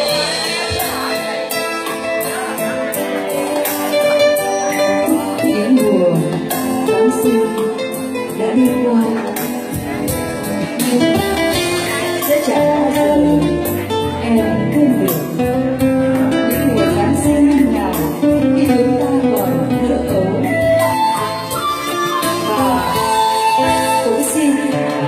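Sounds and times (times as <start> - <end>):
acoustic guitar: 0.0 - 25.0
keyboard: 0.0 - 25.0
women singing a ballad: 10.9 - 15.5, 22.1 - 25.0.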